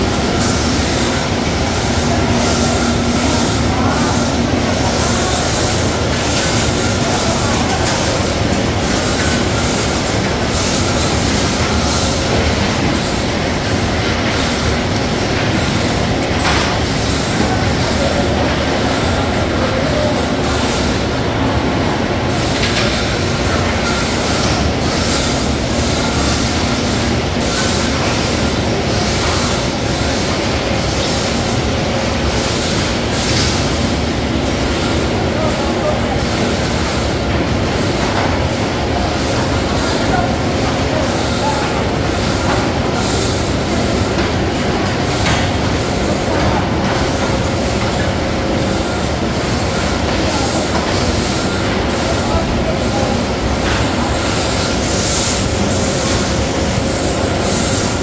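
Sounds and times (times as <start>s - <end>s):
processing machinery din: 0.0s - 58.0s.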